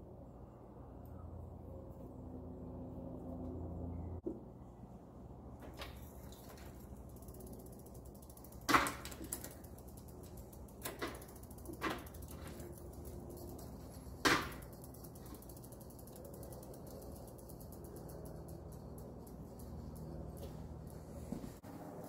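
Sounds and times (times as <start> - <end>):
bicycle hub ratchet ticking: 5.8 - 21.6.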